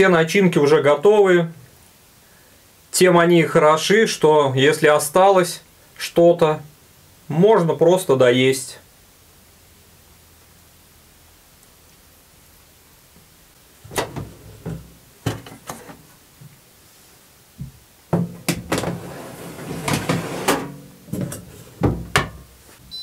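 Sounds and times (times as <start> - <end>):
oven door shutting: 13.9 - 15.9, 18.2 - 22.4
tray clattering and scraping on rack: 13.9 - 16.1, 18.2 - 22.4.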